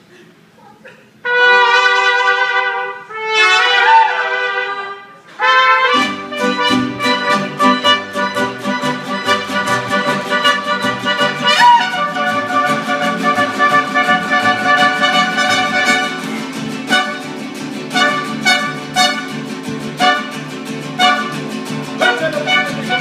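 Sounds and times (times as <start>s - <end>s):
trumpets: 1.2s - 23.0s
strummed guitars: 5.4s - 23.0s
bass guitar: 5.9s - 23.0s
violin: 6.0s - 16.3s.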